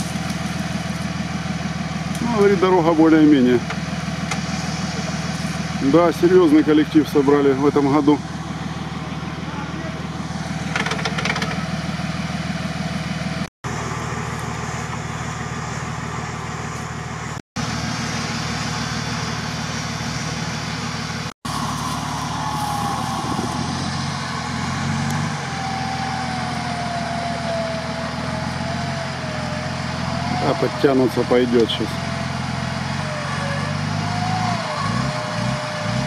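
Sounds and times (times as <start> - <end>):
car engine idling: 0.0 - 36.0
thin whine falling in pitch: 21.5 - 32.6.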